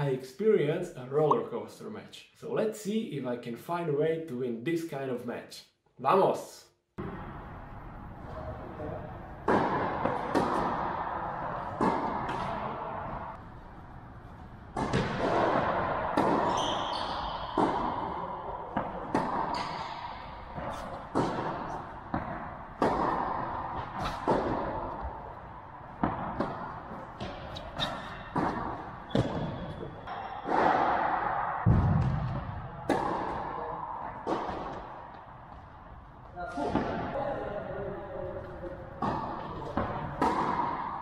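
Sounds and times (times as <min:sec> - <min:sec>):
rackets hitting tennis ball: 0:09.3 - 0:37.2, 0:38.4 - 0:41.0
tennis ball bouncing: 0:09.4 - 0:35.7, 0:39.0 - 0:41.0.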